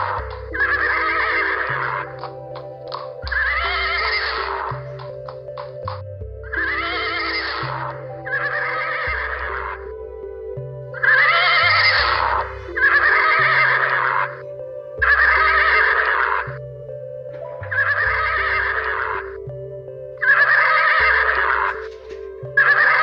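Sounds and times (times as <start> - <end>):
background music with bass line: 0.0 - 23.0
horse whinnying: 0.2 - 2.3, 6.5 - 9.8, 11.0 - 14.4.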